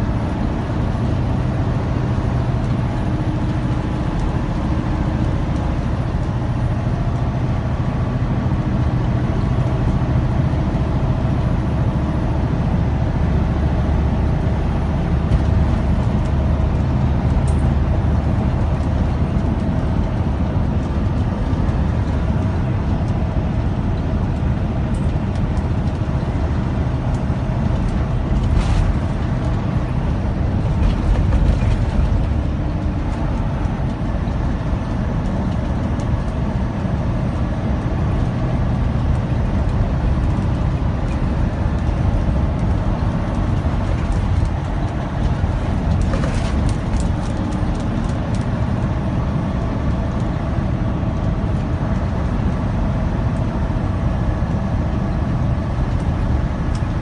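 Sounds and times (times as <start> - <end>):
diesel engine drone: 0.0 - 57.0
tyre noise on wet road: 0.3 - 57.0.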